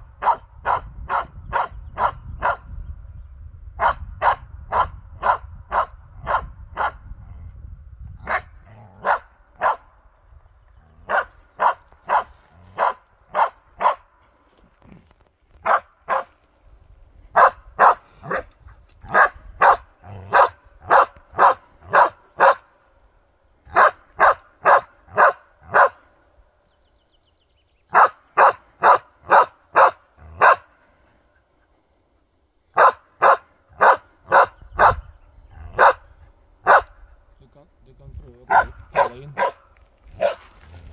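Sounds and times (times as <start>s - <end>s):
dog barking: 0.2s - 2.7s, 3.8s - 7.0s, 8.2s - 9.9s, 11.0s - 14.1s, 15.6s - 16.4s, 17.3s - 22.7s, 23.7s - 26.0s, 27.9s - 30.8s, 32.8s - 37.0s, 38.5s - 40.6s.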